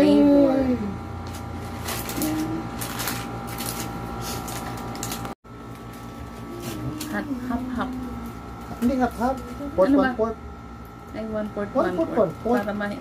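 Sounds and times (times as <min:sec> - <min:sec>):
steady hum: 0:00.0 - 0:13.0
foil crinkling and rustling: 0:01.3 - 0:09.8.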